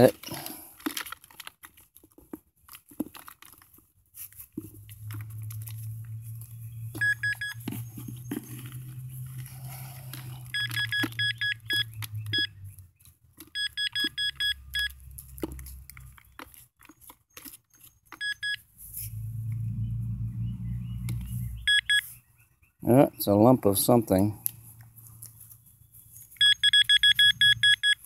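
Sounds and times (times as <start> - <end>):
soil crumbling in hand: 0.0 - 6.9
pinpointer beeping: 7.0 - 7.6, 10.5 - 12.5, 13.6 - 15.0, 18.2 - 18.6, 21.7 - 22.0, 26.4 - 28.0
low hum: 18.9 - 21.7.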